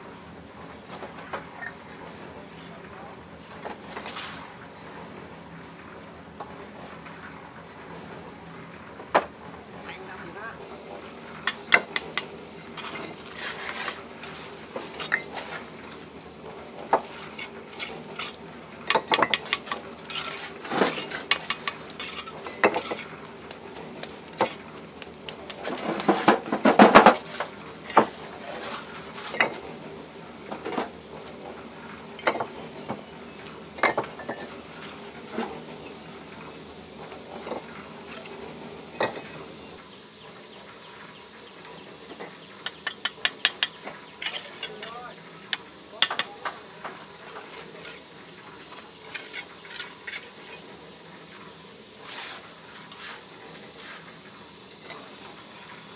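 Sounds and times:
scraping and clattering: 16.9s - 24.6s.

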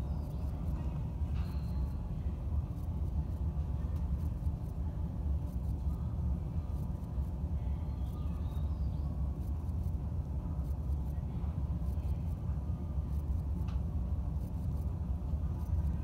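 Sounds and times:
railcar equipment low rumble: 0.0s - 16.0s
faint ticks: 13.1s - 14.9s.

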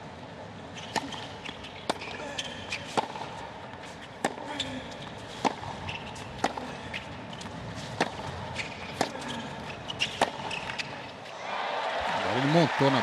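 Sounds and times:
tennis ball struck by rackets: 2.9s - 3.3s, 4.2s - 4.4s, 5.4s - 6.7s, 7.4s - 9.3s, 10.0s - 10.9s
shoe squeaks on court: 5.6s - 11.2s
crowd noise: 11.2s - 13.0s.

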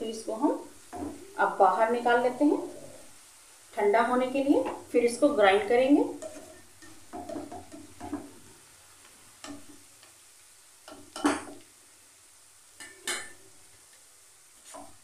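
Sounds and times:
faint frying sizzle: 0.0s - 15.0s
spatula scraping a pan: 6.2s - 8.4s.

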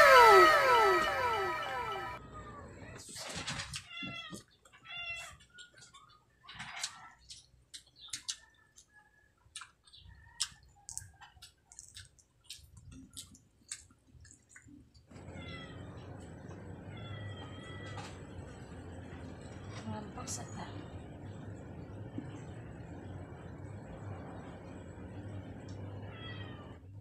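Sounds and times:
high-pitched wavering calls: 0.0s - 2.2s
lip smacks and wet chewing: 6.8s - 15.1s.

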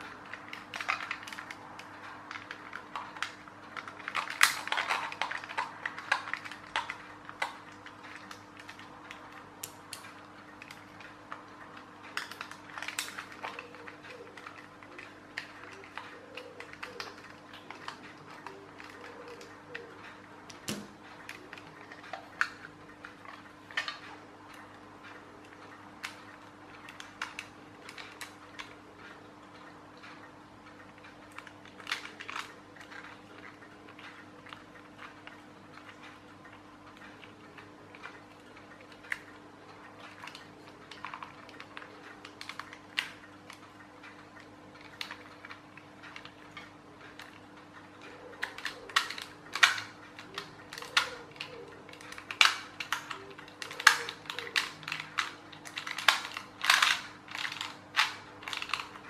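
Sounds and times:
plastic toy parts clicking: 0.0s - 11.1s, 11.8s - 24.6s, 31.3s - 36.2s, 40.0s - 43.6s, 48.0s - 59.0s
faint steady hum: 0.0s - 59.0s.

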